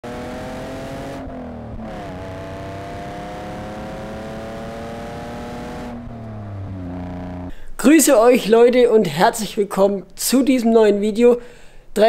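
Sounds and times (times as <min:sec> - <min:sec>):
car engine accelerating hard: 0:00.0 - 0:07.5.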